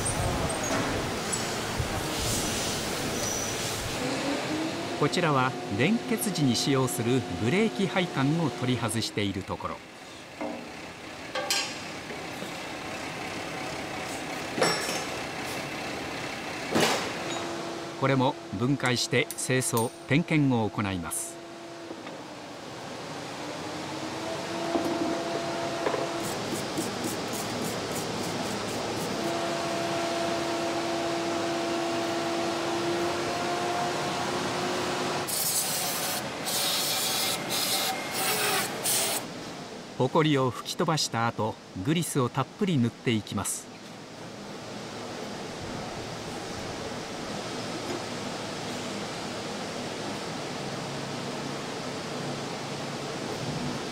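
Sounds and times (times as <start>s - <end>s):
compressed air hissing blasts: 1.3s - 4.0s
workshop background noise: 5.0s - 20.4s, 24.2s - 29.9s, 35.2s - 39.6s.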